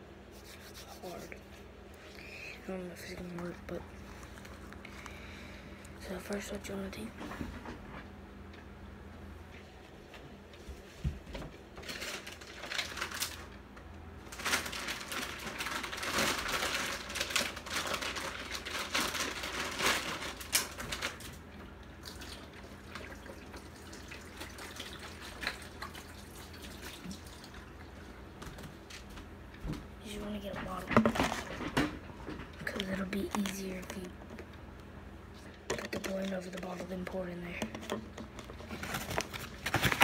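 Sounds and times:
faint room hum: 0:00.0 - 0:40.0
plastic wrap crinkling: 0:11.8 - 0:13.6, 0:14.2 - 0:21.4, 0:32.6 - 0:34.2, 0:35.4 - 0:40.0.

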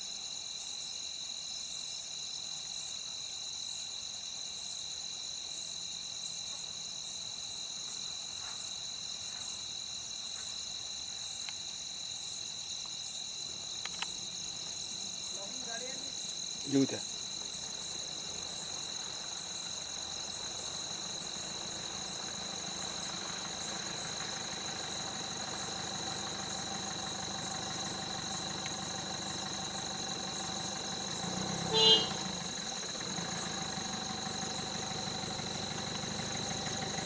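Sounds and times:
crickets chirping: 0:00.0 - 0:37.0
low engine hum: 0:17.4 - 0:37.0.

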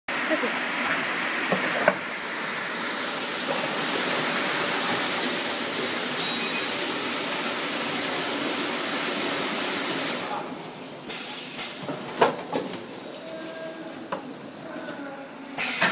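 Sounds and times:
water filling machine hissing: 0:00.1 - 0:12.1.

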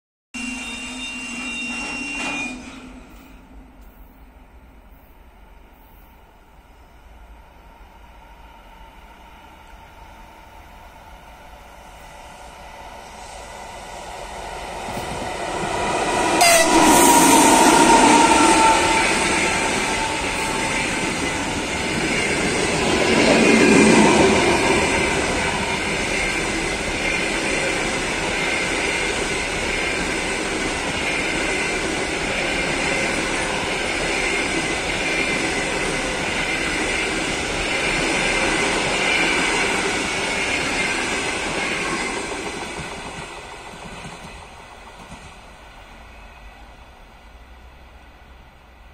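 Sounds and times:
train horn: 0:00.4 - 0:03.6, 0:16.2 - 0:21.4, 0:23.6 - 0:26.4
electric locomotive passing: 0:00.4 - 0:48.9.

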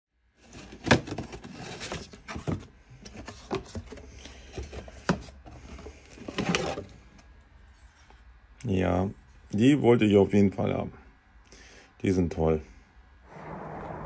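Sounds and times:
cardboard flaps scraping and rustling: 0:00.4 - 0:06.9.

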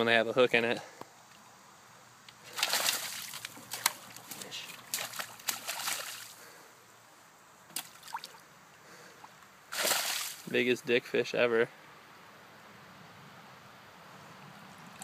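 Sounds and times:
fish thrashing in water splashing: 0:02.5 - 0:06.4, 0:09.7 - 0:10.5.

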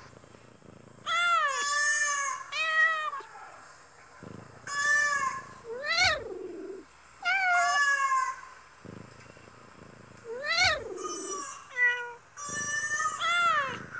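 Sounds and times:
cat meowing: 0:01.0 - 0:03.3, 0:04.6 - 0:08.5, 0:10.3 - 0:13.9.

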